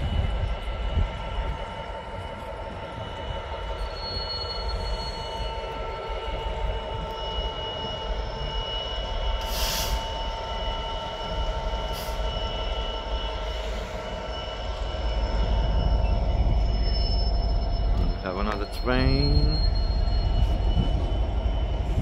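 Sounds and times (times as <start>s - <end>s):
high steady whine: 0.0s - 22.0s
train low rumble: 0.0s - 22.0s
hiss burst: 9.5s - 10.1s.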